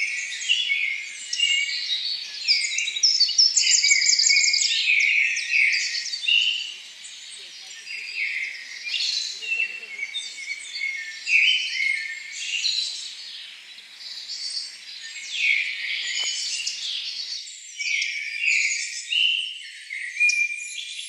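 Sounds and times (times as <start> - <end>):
songbirds singing: 0.0 - 21.0.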